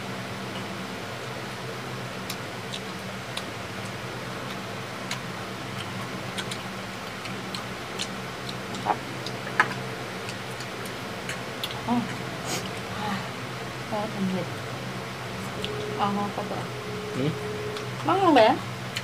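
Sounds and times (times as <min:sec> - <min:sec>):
low hum: 0:00.0 - 0:19.0
people chewing: 0:02.3 - 0:13.3.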